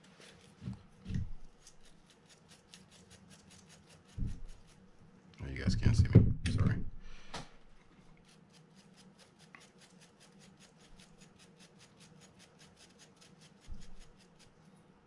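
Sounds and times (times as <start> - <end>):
toothbrush scrubbing metal gear: 1.4 - 4.9, 8.2 - 14.6
dull low bump: 5.7 - 7.0.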